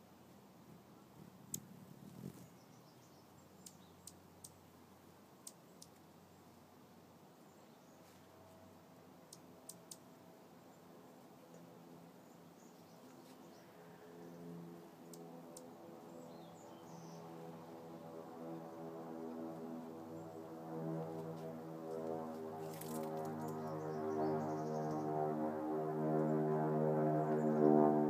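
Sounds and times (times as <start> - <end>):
faint sharp clicks: 1.5 - 1.7, 5.4 - 6.0, 9.3 - 10.1, 15.1 - 15.7.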